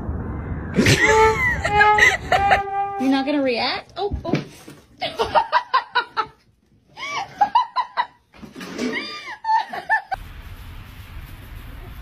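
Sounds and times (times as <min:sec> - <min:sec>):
person laughing: 0:00.8 - 0:02.8.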